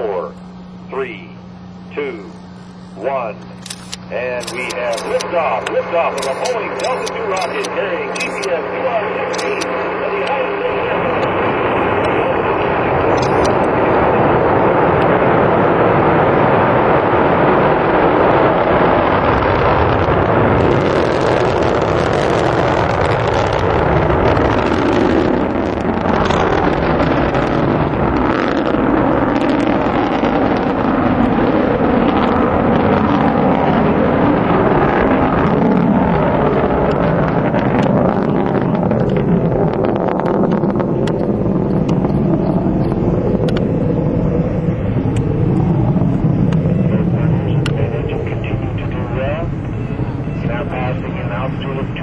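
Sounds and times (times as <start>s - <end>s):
rocket engine rumbling and crackling: 0.0s - 52.0s.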